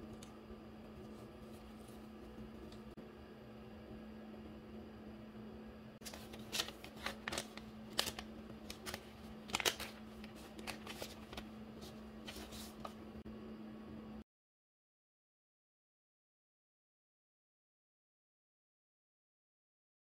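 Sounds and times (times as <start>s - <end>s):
faint steady hum: 0.0s - 14.2s
plastic and paper crinkling: 6.0s - 13.0s.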